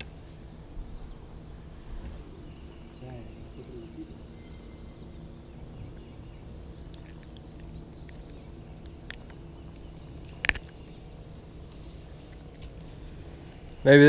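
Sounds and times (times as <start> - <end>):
faint bird chirps: 0.0 - 14.0
low steady hum: 0.0 - 14.0.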